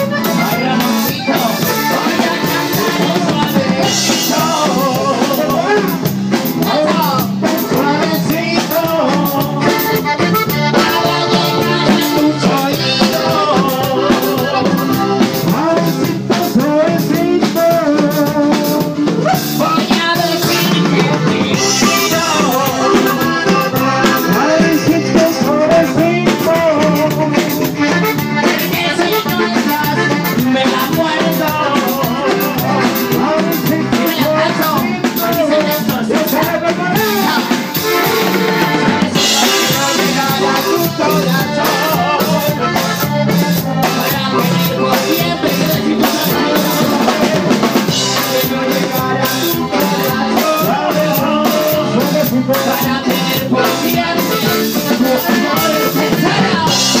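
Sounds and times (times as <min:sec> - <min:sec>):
live band music: 0:00.0 - 0:57.0
steady drum beat: 0:00.0 - 0:57.0.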